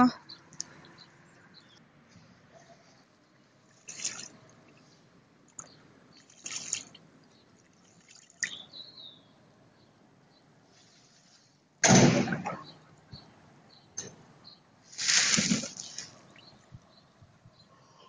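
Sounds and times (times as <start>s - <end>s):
pigeons splashing in puddle: 3.7s - 4.6s, 5.5s - 8.6s, 15.0s - 16.2s.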